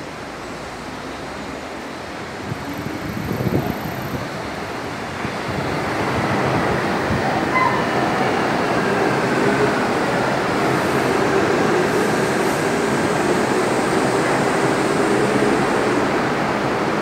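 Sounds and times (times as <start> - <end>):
monorail tyres rushing on guideway: 0.0 - 17.0.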